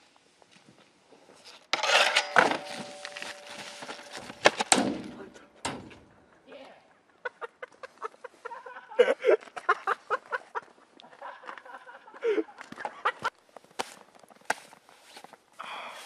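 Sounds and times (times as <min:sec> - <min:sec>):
sharp knocks: 0:01.8 - 0:06.0
people laughing: 0:07.2 - 0:13.3.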